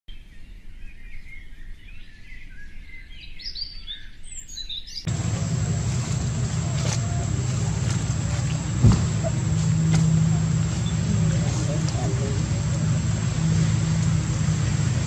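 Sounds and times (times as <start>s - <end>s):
birds chirping: 3.6s - 15.0s
low rumble: 5.1s - 15.0s.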